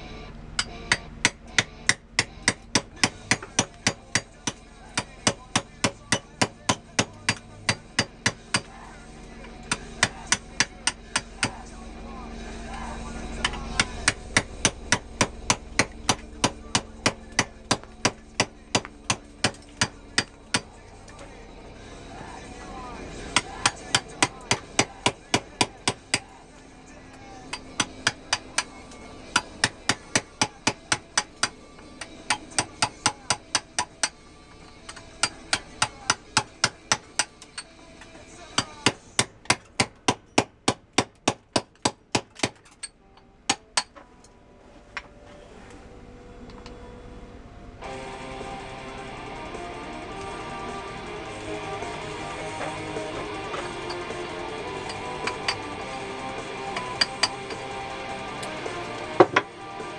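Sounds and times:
hammer striking chisel on marble: 0:00.6 - 0:08.8, 0:09.6 - 0:11.6, 0:13.4 - 0:20.7, 0:23.3 - 0:26.3, 0:27.5 - 0:34.2, 0:34.8 - 0:37.7, 0:38.5 - 0:42.7, 0:43.5 - 0:44.0, 0:52.7 - 0:55.8, 0:56.8 - 0:57.7, 0:59.2 - 0:59.5.

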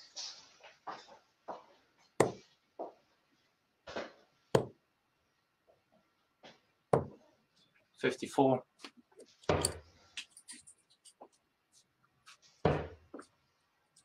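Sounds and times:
darts thudding into dartboard: 0:02.2 - 0:02.5, 0:04.0 - 0:04.8, 0:12.6 - 0:13.0.

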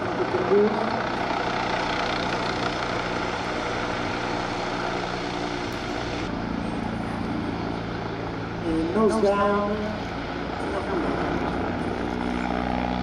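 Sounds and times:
helicopter flying overhead: 0:00.0 - 0:13.0.

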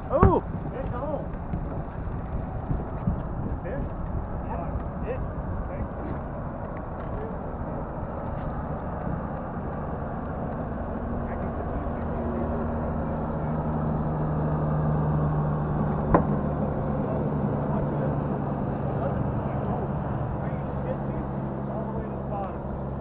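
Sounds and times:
wind rushing: 0:00.0 - 0:17.7
boat motor running: 0:00.0 - 0:23.0.

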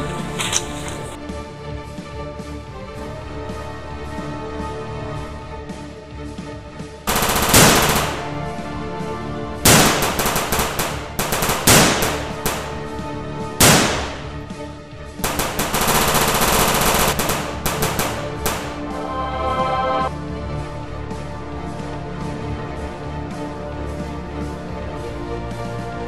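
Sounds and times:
background music: 0:00.0 - 0:26.0
machine-gun fire bursts: 0:07.1 - 0:08.4, 0:09.7 - 0:12.9, 0:13.6 - 0:14.4, 0:15.2 - 0:18.8.

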